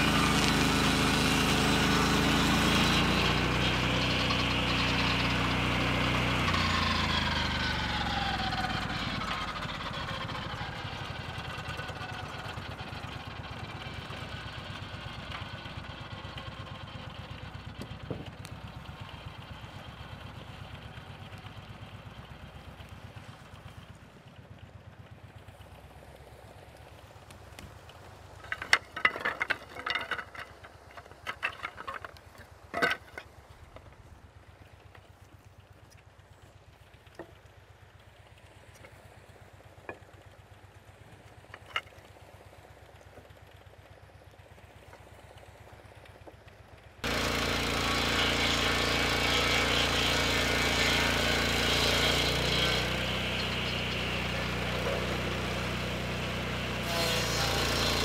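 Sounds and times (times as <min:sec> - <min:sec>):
circular saw blade cutting log: 0:00.0 - 0:20.4, 0:28.3 - 0:34.1, 0:41.4 - 0:42.2, 0:47.0 - 0:58.0
engine idling: 0:00.0 - 0:58.0
wooden boards knocking together: 0:28.4 - 0:33.3.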